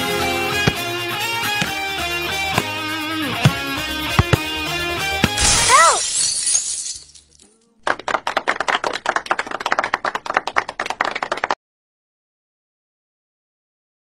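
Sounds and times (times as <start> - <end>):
crash: 5.2 - 7.2.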